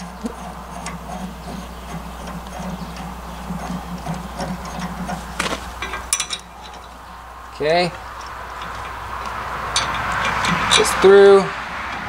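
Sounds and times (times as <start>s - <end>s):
steady low hum: 0.0s - 12.0s
metal chain clinks and scrapes: 5.8s - 7.0s.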